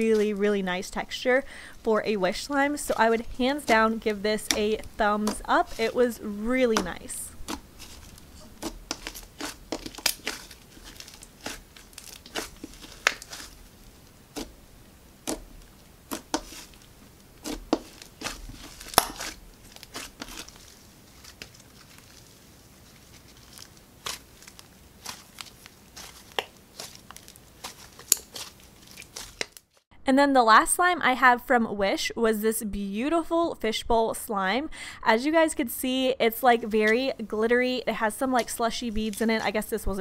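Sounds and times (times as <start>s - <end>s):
slime sticky clicks and crackles: 8.6s - 13.6s.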